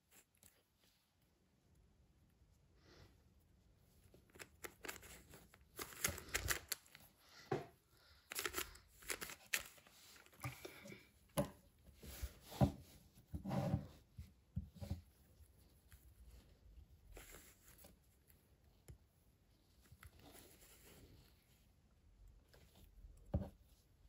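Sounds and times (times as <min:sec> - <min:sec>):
plastic puzzle cube clicking: 0:05.8 - 0:06.8, 0:08.3 - 0:09.7.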